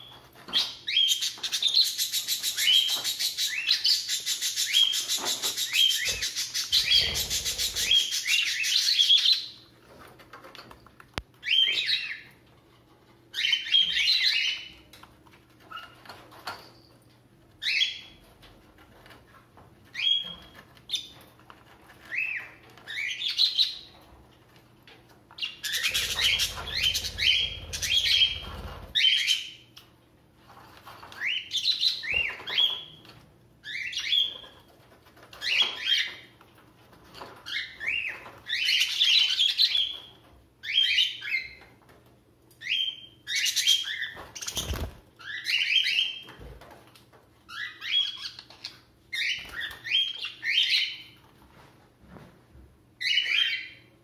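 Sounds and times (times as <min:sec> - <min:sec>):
budgerigars chirping: 0:02.2 - 0:09.5, 0:25.5 - 0:29.2
rustling noise: 0:51.2 - 0:52.7.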